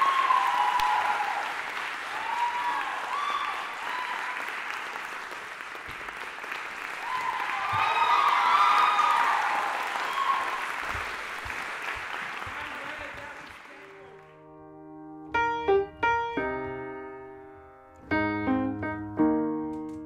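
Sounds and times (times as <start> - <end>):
whoops: 0.0 - 4.6, 7.0 - 10.8
audience applauding: 0.0 - 14.4
slow piano chords: 13.9 - 20.0.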